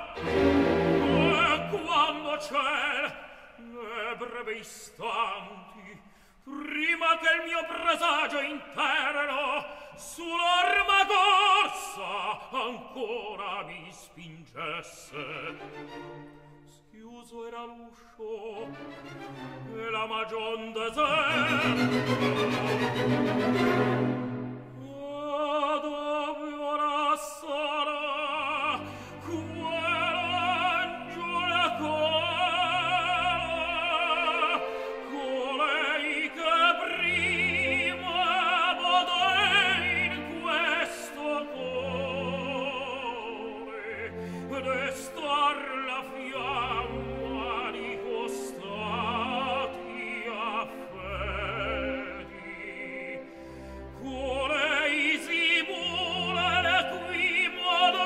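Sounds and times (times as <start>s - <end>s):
orchestra playing low notes: 0.0s - 2.3s, 18.4s - 25.1s
operatic tenor singing: 0.0s - 58.0s.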